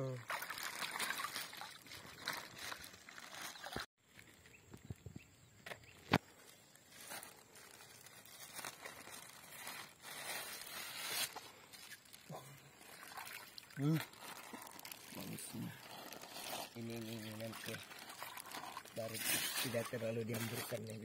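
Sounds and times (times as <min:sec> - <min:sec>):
water splashing into pond: 0:00.0 - 0:03.9, 0:11.8 - 0:16.3, 0:17.0 - 0:21.0
rustling and handling noises: 0:00.5 - 0:04.9, 0:06.0 - 0:21.0.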